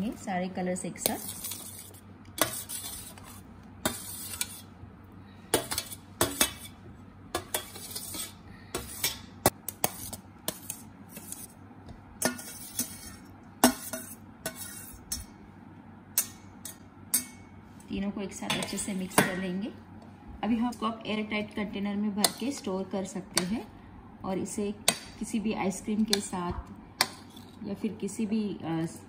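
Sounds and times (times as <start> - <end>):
spoon scraping a steel plate: 1.0 - 4.7, 5.5 - 6.8, 7.4 - 11.6, 12.2 - 15.3.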